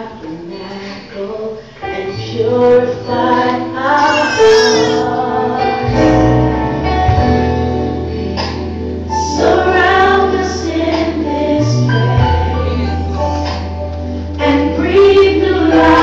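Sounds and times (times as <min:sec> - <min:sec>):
gospel singing voices: 0:00.0 - 0:06.4, 0:09.2 - 0:13.4, 0:14.4 - 0:16.0.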